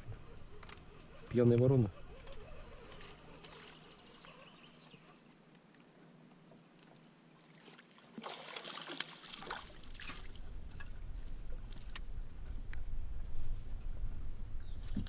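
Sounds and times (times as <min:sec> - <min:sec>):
water lapping against boat: 0:07.0 - 0:10.4
sharp water splashes: 0:07.5 - 0:10.4.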